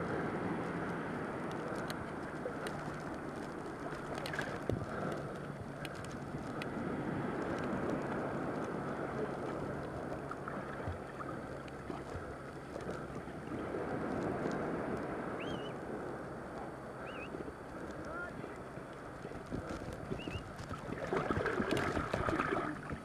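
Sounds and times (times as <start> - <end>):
sea surf: 0.0 - 23.0
wind buffeting microphone: 11.9 - 23.0.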